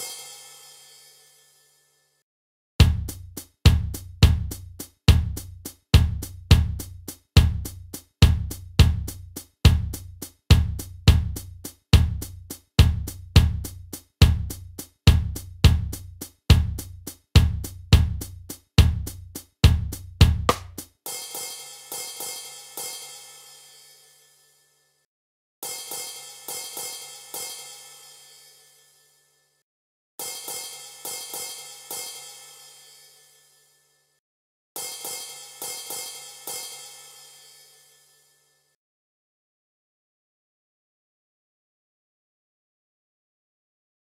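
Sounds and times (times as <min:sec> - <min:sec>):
drum kit beat: 0:00.0 - 0:00.5, 0:02.8 - 0:23.1, 0:25.6 - 0:27.7, 0:30.2 - 0:32.4, 0:34.8 - 0:37.1
cymbals ringing: 0:00.0 - 0:01.9, 0:25.6 - 0:29.2, 0:30.2 - 0:33.8, 0:34.8 - 0:38.4.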